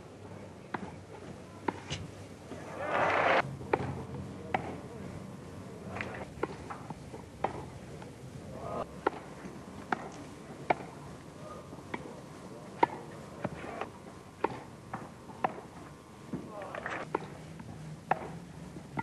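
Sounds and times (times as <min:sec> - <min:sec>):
tennis ball hit with racquets: 0:01.7 - 0:04.8, 0:05.9 - 0:07.7, 0:09.0 - 0:10.9, 0:12.8 - 0:17.4, 0:18.0 - 0:18.4.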